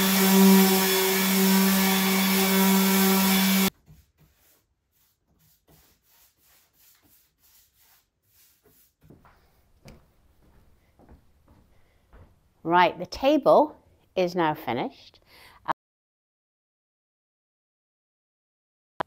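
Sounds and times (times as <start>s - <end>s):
electric sander humming: 0.0s - 3.7s
paintbrush strokes: 3.7s - 9.6s.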